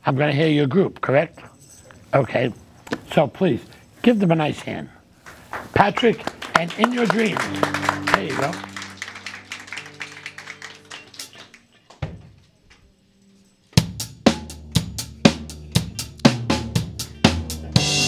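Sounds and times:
applause: 0:05.2 - 0:11.7
drum kit beat: 0:06.5 - 0:11.6, 0:13.8 - 0:18.0.

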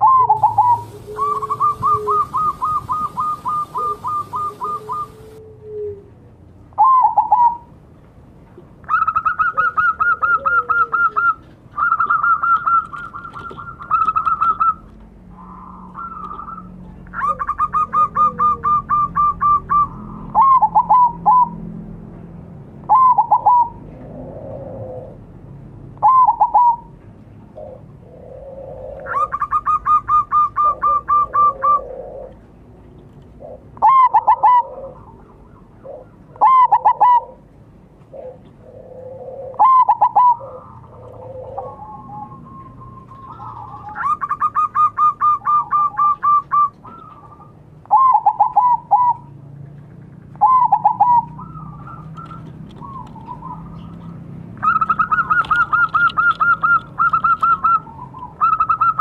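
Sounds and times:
dove cooing song: 0:00.0 - 0:07.8, 0:08.8 - 0:21.7, 0:22.8 - 0:25.4, 0:26.0 - 0:32.6, 0:33.2 - 0:49.4, 0:50.3 - 0:59.0.

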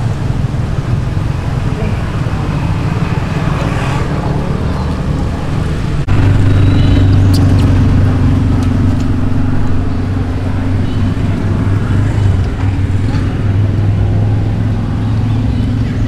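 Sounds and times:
low engine rumble: 0:00.0 - 0:16.0.

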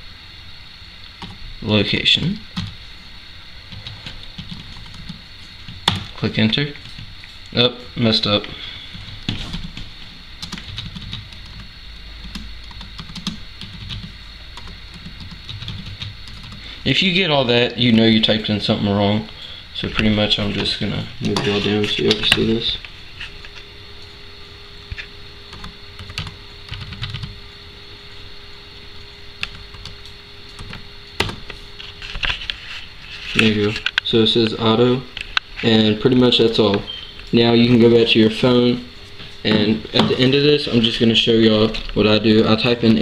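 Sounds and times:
faint hum: 0:00.0 - 0:43.0
keyboard typing: 0:03.7 - 0:06.1, 0:09.2 - 0:16.6, 0:25.0 - 0:27.4, 0:29.4 - 0:31.6.

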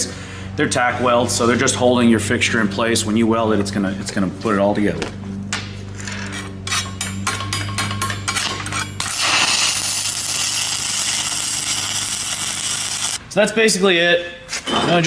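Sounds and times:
welding arc crackling sizzle: 0:09.0 - 0:13.2.

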